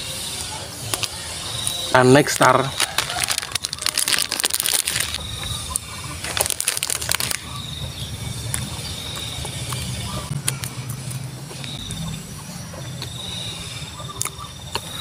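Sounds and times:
plastic wrapper crinkling: 2.3 - 5.2, 6.2 - 7.5.

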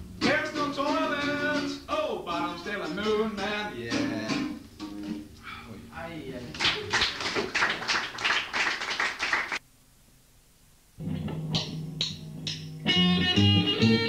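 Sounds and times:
low amplifier hum: 0.0 - 7.9, 9.5 - 14.0
electric guitar: 11.0 - 14.0.

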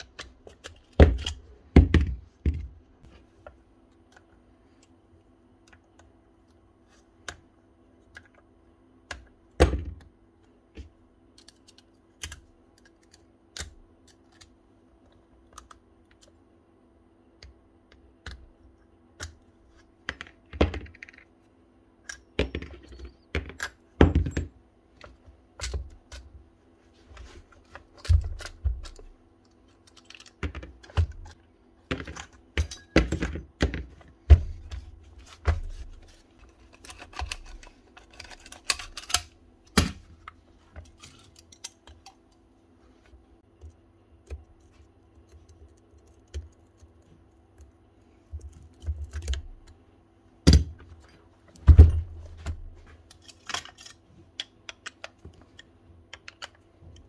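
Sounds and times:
faint steady hum: 0.0 - 57.0
metal parts clicking and clinking: 32.0 - 33.4.

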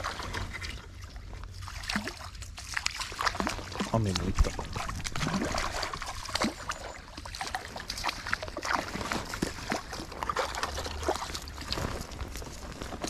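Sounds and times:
water sloshing: 0.0 - 13.0
ice crackling: 8.5 - 13.0
footsteps crunching on ice: 8.6 - 13.0.

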